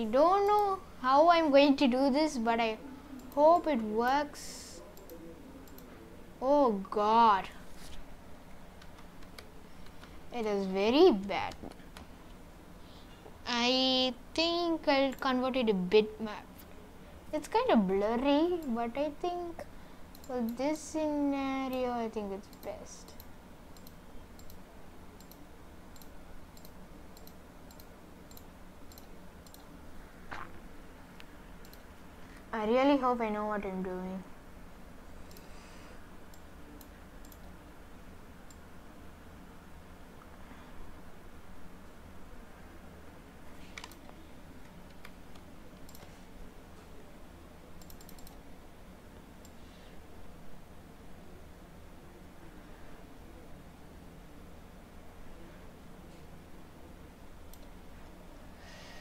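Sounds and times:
faint steady low hum: 0.0 - 59.0
mouse clicks: 31.2 - 31.8, 47.8 - 48.4.

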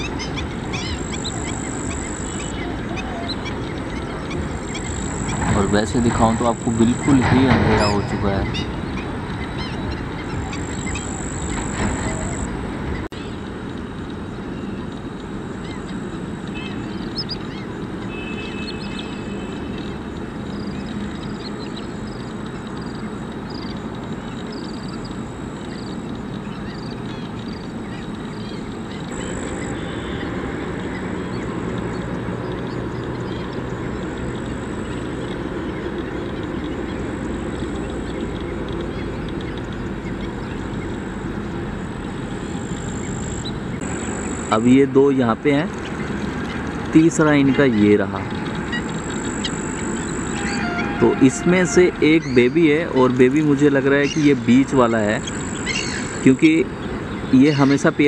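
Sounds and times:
waterfowl quacking and honking: 0.0 - 12.5, 47.4 - 56.6
high bird chirps: 0.0 - 13.4, 15.6 - 41.0, 47.3 - 58.0
steady background rush: 0.0 - 58.0.

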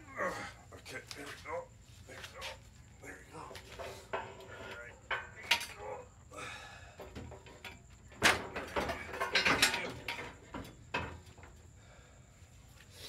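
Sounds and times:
metal knocks and clanks: 3.4 - 6.0, 7.0 - 11.6.

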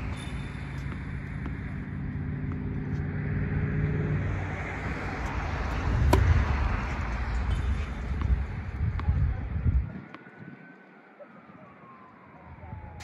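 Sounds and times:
vehicle engine hum: 0.0 - 9.9
road traffic rumble: 0.0 - 10.0
wind on microphone: 4.2 - 10.6.

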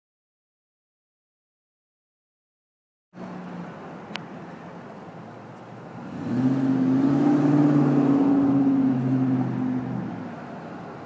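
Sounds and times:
street traffic: 3.2 - 11.0
vehicle engine accelerating: 5.9 - 10.6.

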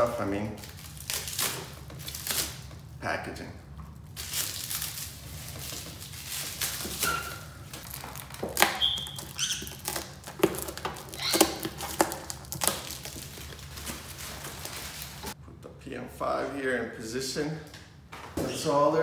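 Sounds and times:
plastic wrap crinkling and tearing: 0.0 - 2.9, 4.1 - 15.4
short squeaks: 7.0 - 7.7, 8.6 - 10.1, 11.1 - 11.6.

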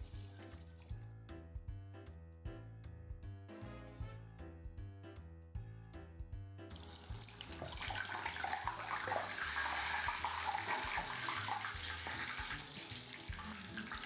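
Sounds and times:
soft background music: 0.0 - 14.0
food sizzling in hot oil: 6.7 - 14.0.

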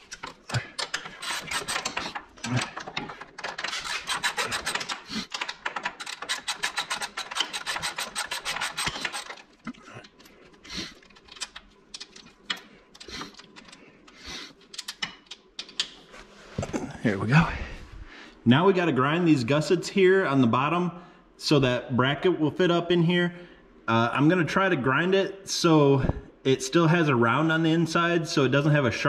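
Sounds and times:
ratchet wrench clicking: 0.1 - 2.6, 3.6 - 9.4.

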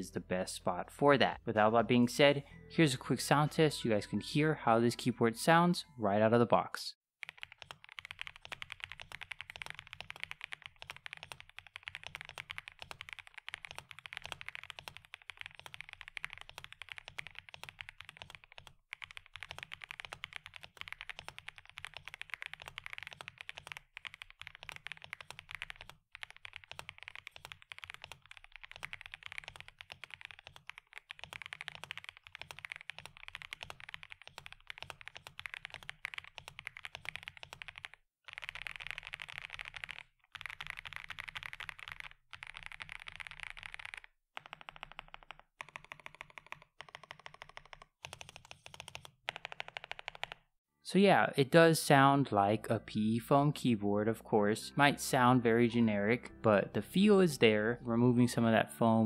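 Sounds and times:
mechanical keyboard typing: 7.2 - 50.4.

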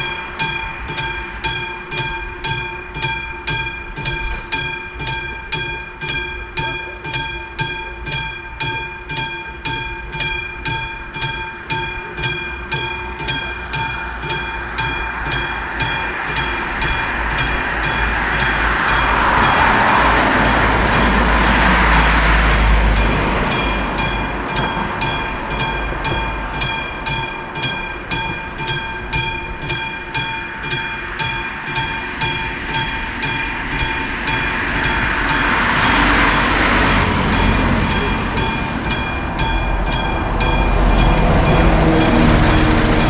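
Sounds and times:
level crossing warning bell: 0.0 - 43.0
broad rushing noise: 13.7 - 43.0.

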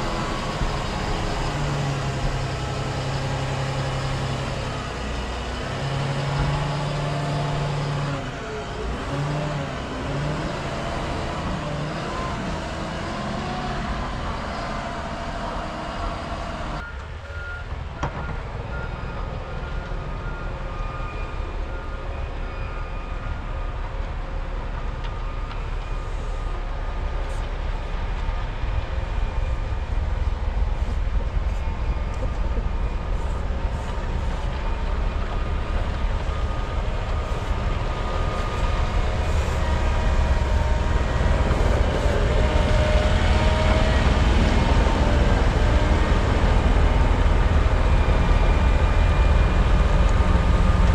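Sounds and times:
diesel engines: 0.0 - 50.9
reversing beeps: 15.6 - 23.8.

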